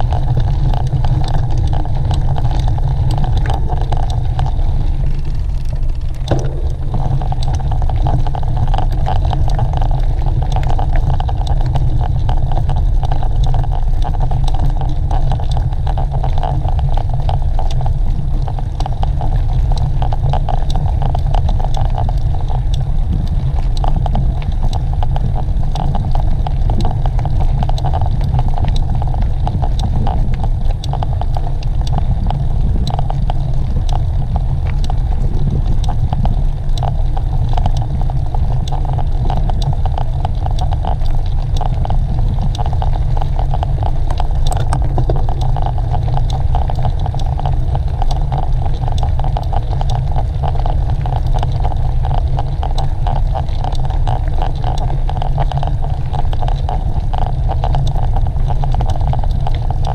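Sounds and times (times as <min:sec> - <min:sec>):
bike rattling over rough ground: 0:00.0 - 0:12.2
wind buffeting microphone: 0:00.0 - 0:12.5, 0:22.1 - 0:41.2.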